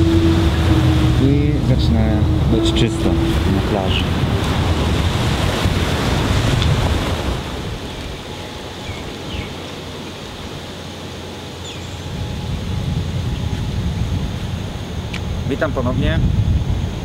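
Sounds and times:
breaking surf: 0.0 - 11.4
steady outdoor hiss: 0.0 - 17.0
wind buffeting microphone: 0.0 - 17.0.

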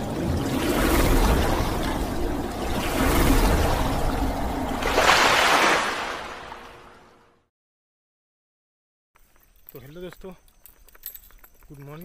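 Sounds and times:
rushing splashing water: 0.0 - 7.2.

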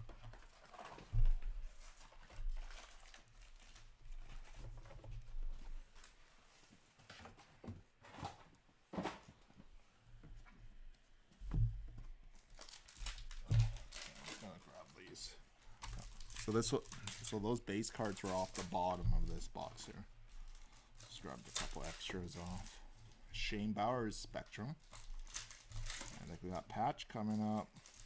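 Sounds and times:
cards and paper rustling: 0.1 - 7.5, 12.4 - 23.6, 24.5 - 28.0.

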